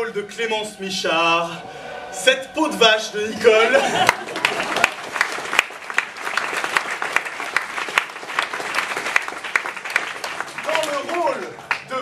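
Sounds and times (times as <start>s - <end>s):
audience applause: 3.7s - 12.0s.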